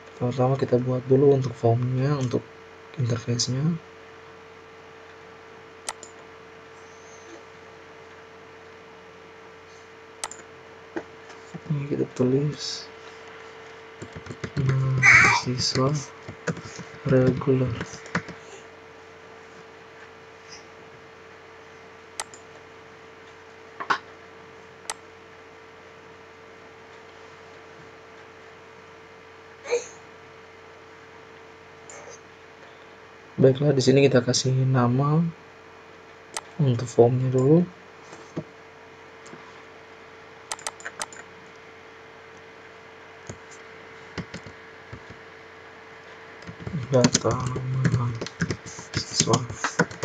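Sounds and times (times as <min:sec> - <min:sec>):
steady electrical hum: 0:00.0 - 0:50.0
computer mouse clicks: 0:05.8 - 0:06.2, 0:10.2 - 0:10.5, 0:22.2 - 0:22.5, 0:40.5 - 0:41.3, 0:43.2 - 0:45.2
keyboard and mouse clicks: 0:05.9 - 0:06.2, 0:10.2 - 0:10.5, 0:14.0 - 0:14.8, 0:15.7 - 0:18.4, 0:22.2 - 0:22.4, 0:40.5 - 0:41.3, 0:43.2 - 0:45.2, 0:46.4 - 0:50.0.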